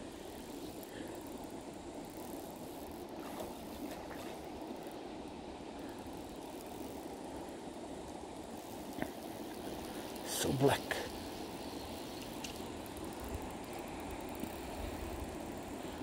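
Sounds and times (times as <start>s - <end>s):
river water running over rocks: 1.5s - 16.0s.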